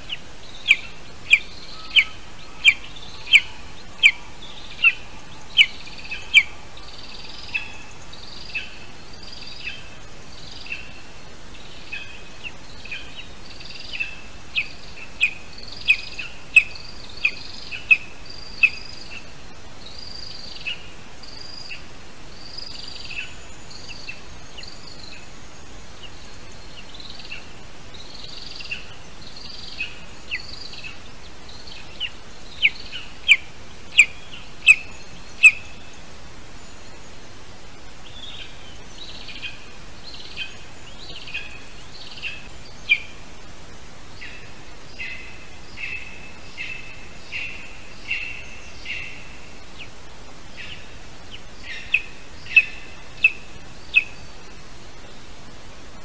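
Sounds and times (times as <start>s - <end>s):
nestling peeping: 0.0s - 11.0s, 22.5s - 43.5s, 44.1s - 55.6s
steady background hiss: 0.0s - 56.0s.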